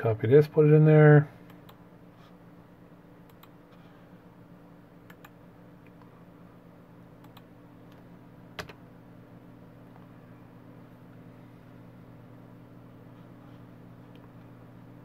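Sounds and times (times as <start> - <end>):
steady low hum: 0.0 - 15.0
keyboard and mouse clicks: 5.1 - 6.1, 7.2 - 7.5.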